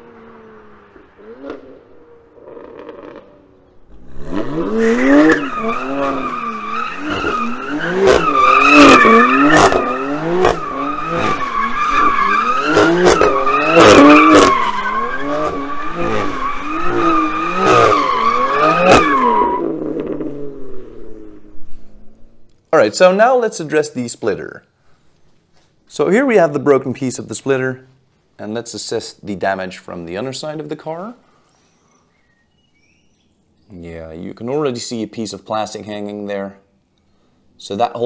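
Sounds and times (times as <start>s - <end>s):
car engine revving: 0.0s - 22.6s
sharp exhaust cracks: 0.0s - 22.7s
tyres squealing: 4.5s - 19.8s.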